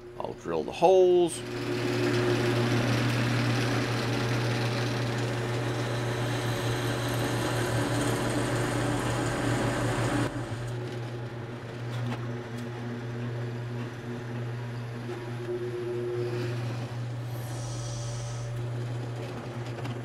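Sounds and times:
drill press motor hum: 0.0s - 20.0s
drill bit cutting wood: 1.4s - 8.4s, 15.8s - 18.7s.

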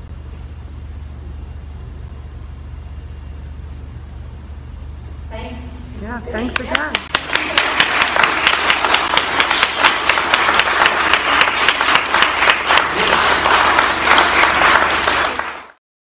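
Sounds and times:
audience applauding: 6.6s - 15.8s.

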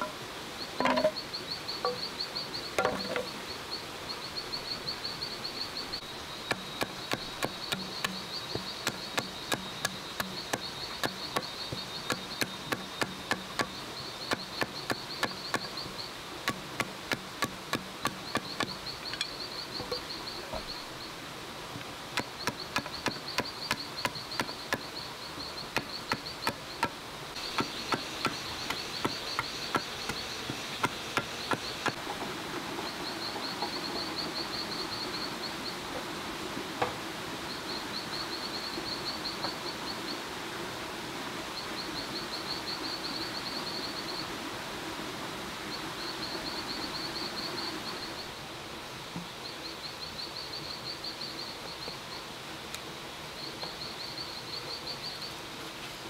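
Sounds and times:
insects chirping in trills: 0.0s - 40.5s, 41.4s - 44.8s, 45.4s - 56.0s
blade chopping on wooden log: 6.4s - 15.9s, 16.5s - 18.8s, 22.2s - 24.9s, 25.7s - 32.0s.

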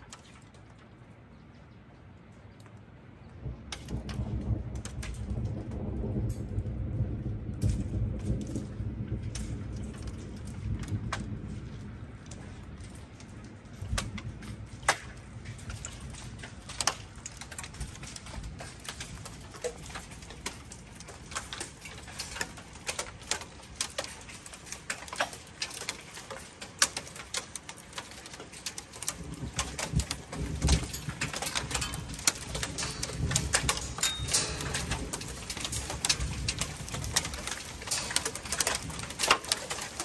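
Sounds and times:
low rumble: 3.4s - 16.7s
hail ticking on wooden deck: 3.4s - 40.0s.

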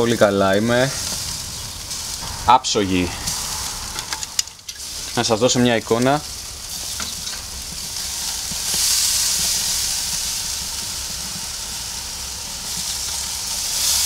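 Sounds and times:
steak sizzling on grill: 6.2s - 14.0s.

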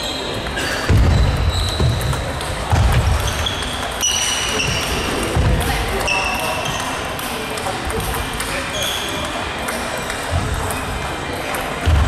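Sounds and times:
sneaker squeaks: 0.0s - 7.1s, 8.5s - 9.4s.

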